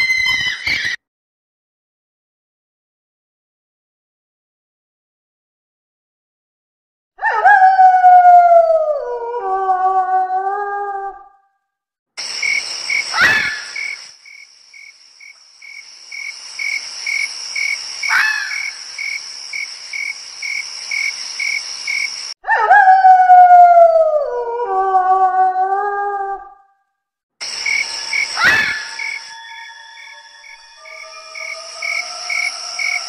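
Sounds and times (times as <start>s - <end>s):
long howl falling in pitch: 7.2s - 11.3s, 22.5s - 26.6s, 28.2s - 33.0s
cricket-like chirp: 12.2s - 22.4s, 27.4s - 33.0s
night insects buzzing: 12.2s - 22.4s, 27.4s - 33.0s.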